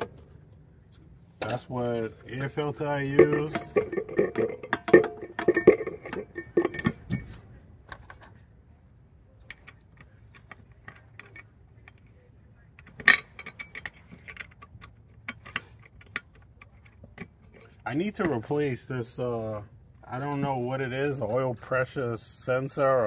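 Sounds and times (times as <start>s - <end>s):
light metallic clicks and clinks: 9.4s - 18.5s.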